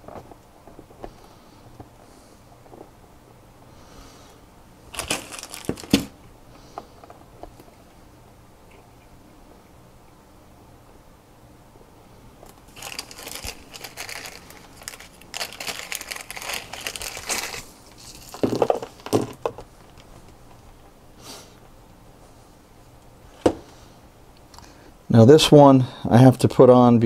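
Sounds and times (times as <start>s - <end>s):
plastic bag crinkling: 4.9s - 6.2s, 12.5s - 20.7s.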